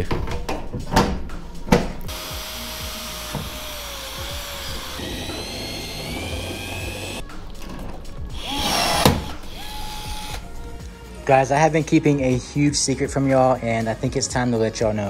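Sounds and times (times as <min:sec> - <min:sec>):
cordless drill boring through metal: 0:02.1 - 0:07.2, 0:08.4 - 0:10.4.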